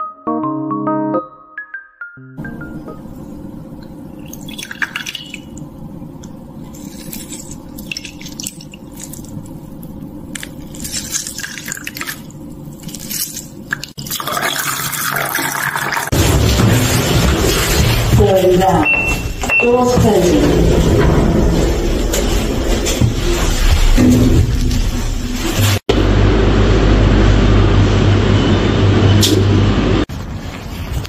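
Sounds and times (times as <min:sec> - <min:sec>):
water pouring into a glass: 0:14.0 - 0:16.1.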